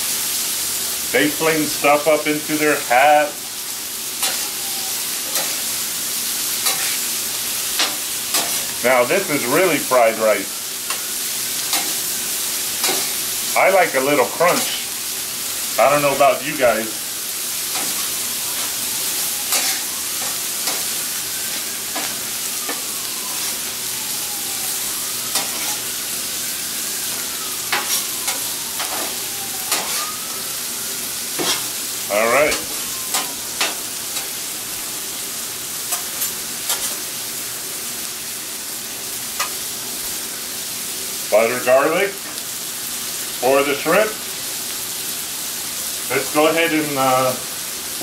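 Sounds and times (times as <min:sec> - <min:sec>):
food sizzling on griddle: 0:00.0 - 0:48.0
metal spatulas scraping steel: 0:04.2 - 0:04.6, 0:05.2 - 0:05.6, 0:06.6 - 0:07.0, 0:07.8 - 0:08.7, 0:19.5 - 0:20.9, 0:25.3 - 0:25.8, 0:29.7 - 0:30.1.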